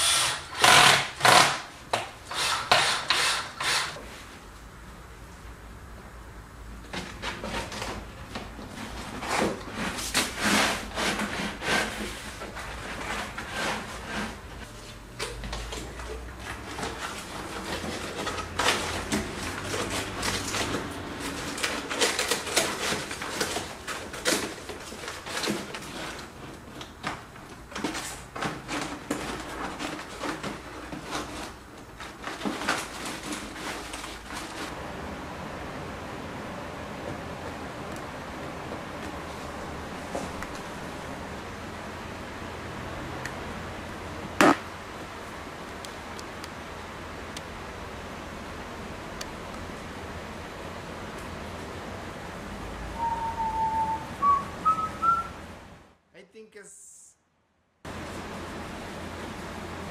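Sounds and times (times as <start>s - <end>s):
paper rustling and tearing: 15.6s - 26.6s, 27.8s - 34.7s.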